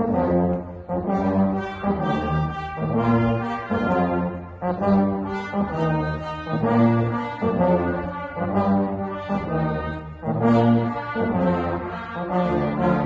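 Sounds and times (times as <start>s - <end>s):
brass band playing: 0.0s - 13.0s.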